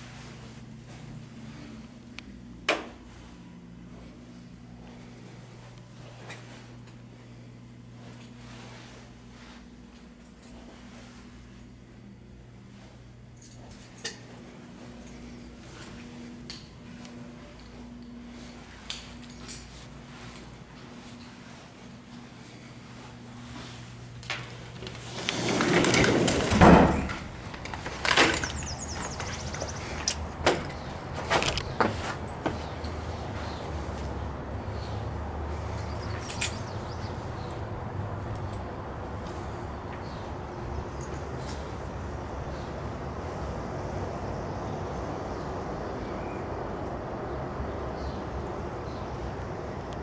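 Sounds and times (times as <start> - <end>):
distant city traffic rumble: 10.6 - 50.0
sliding door rolling open: 24.7 - 31.6.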